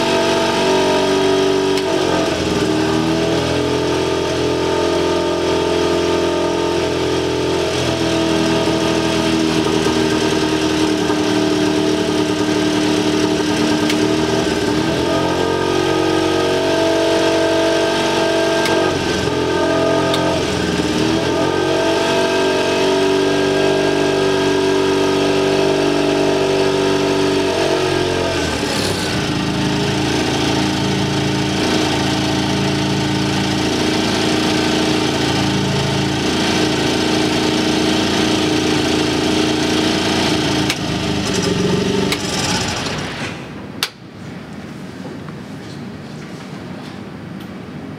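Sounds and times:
aircraft engine running: 0:07.1 - 0:21.7, 0:26.7 - 0:43.4.

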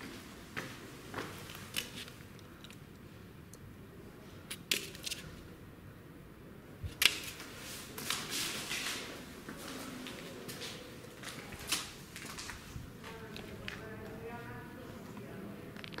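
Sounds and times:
rustling and scuffing on floor: 0:07.0 - 0:13.9.

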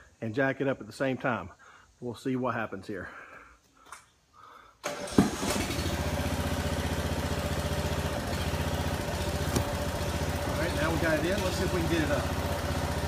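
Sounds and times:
small gasoline engine running: 0:04.9 - 0:13.0.

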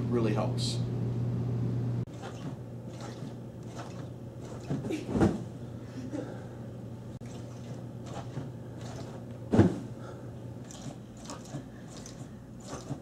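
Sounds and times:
steady low hum: 0:00.0 - 0:13.0
body thumping onto bean bag: 0:09.5 - 0:09.9.

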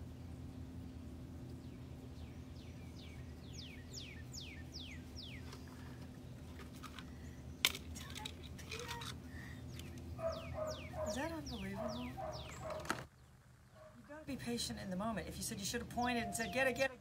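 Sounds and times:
steady low hum: 0:00.0 - 0:17.0
bird singing slurred whistles: 0:16.1 - 0:16.9.

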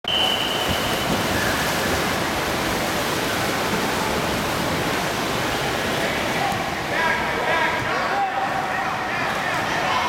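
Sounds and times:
referee's whistle blast: 0:00.0 - 0:01.1
splashing water: 0:00.1 - 0:06.9.

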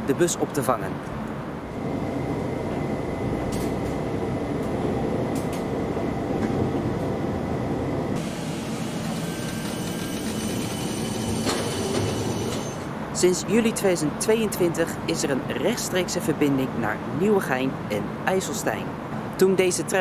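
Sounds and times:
tram passing with hiss and whine: 0:00.0 - 0:20.0
tram wheels rumbling on rail: 0:01.2 - 0:13.8.

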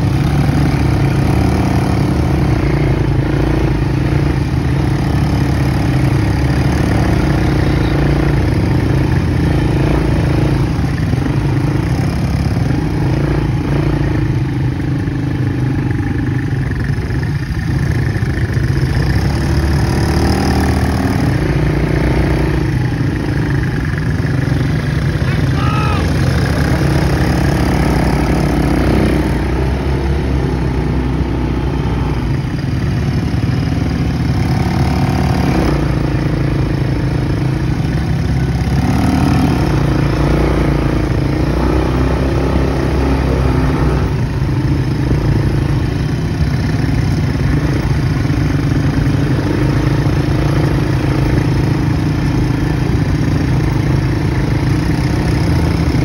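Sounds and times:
quad bike engines running: 0:00.0 - 0:56.0.

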